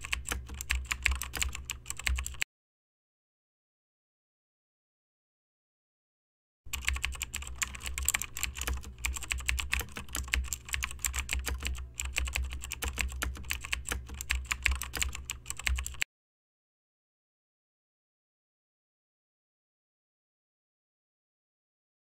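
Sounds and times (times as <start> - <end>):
computer keyboard typing: 0.0 - 2.4, 6.7 - 16.0
low steady hum: 0.0 - 2.4, 6.7 - 16.0.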